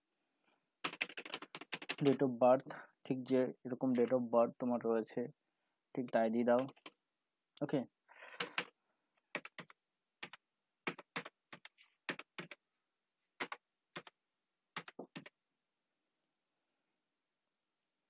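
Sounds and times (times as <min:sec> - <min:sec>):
computer keyboard keys tapping: 0:00.8 - 0:02.2, 0:06.0 - 0:07.0, 0:08.4 - 0:08.7, 0:09.3 - 0:12.6, 0:13.4 - 0:14.1, 0:14.8 - 0:15.3.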